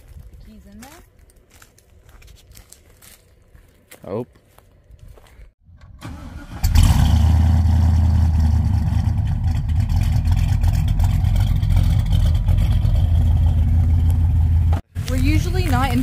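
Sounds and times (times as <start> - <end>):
car engine starting and idling: 5.7 - 15.6.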